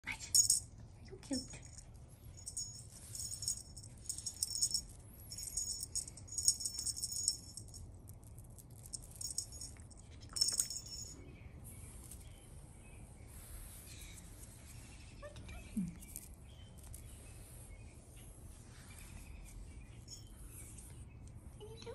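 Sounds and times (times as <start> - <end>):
bright metallic jingling: 0.3 - 7.9, 8.6 - 11.3, 19.8 - 20.9.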